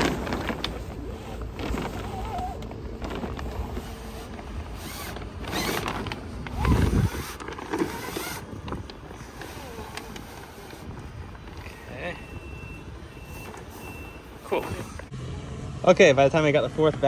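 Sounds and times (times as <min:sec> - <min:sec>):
sailcloth rustling and crinkling: 0:00.0 - 0:12.4.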